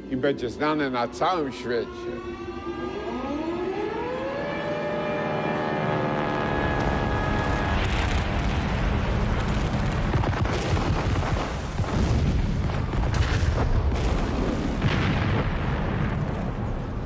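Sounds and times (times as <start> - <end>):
air-raid siren: 0.6 - 9.6
sharp explosions: 6.6 - 17.0
low rumble of bombardment: 6.8 - 17.0.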